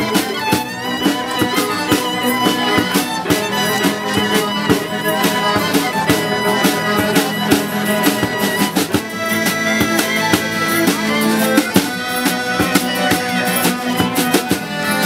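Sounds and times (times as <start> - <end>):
strummed acoustic guitar: 0.0 - 15.0
violins playing melody: 0.0 - 15.0.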